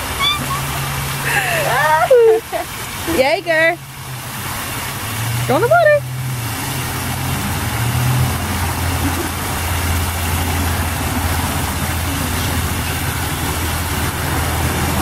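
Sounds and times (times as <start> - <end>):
water pouring into plastic pool: 0.0 - 15.0.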